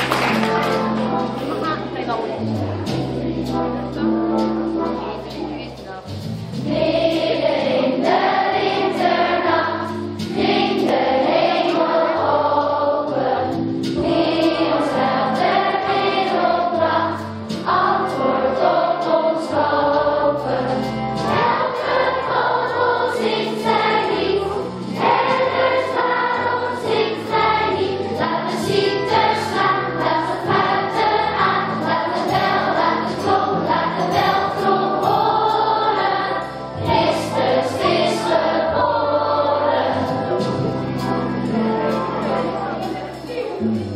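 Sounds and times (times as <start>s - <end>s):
instrumental accompaniment: 0.0s - 43.9s
children's choir singing: 6.6s - 43.9s.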